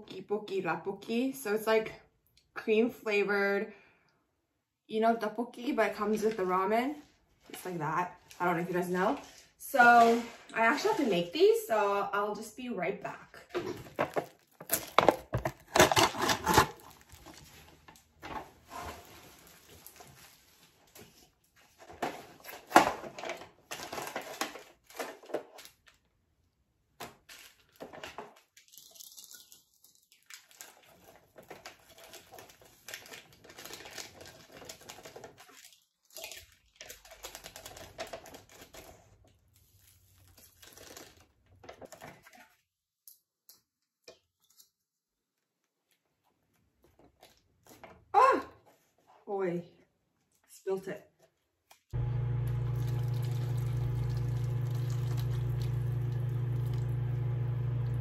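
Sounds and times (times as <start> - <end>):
plastic packaging tearing and crinkling: 13.8 - 26.1, 27.0 - 42.6
sachets ripping and rustling: 14.1 - 18.1, 19.0 - 21.2, 27.0 - 42.0.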